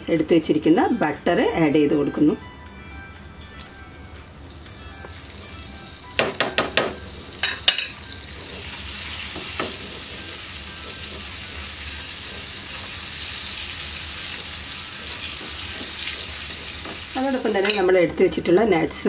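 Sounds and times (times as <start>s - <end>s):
butter sizzling in a pan: 3.2s - 19.0s
spatula stirring: 6.4s - 18.9s.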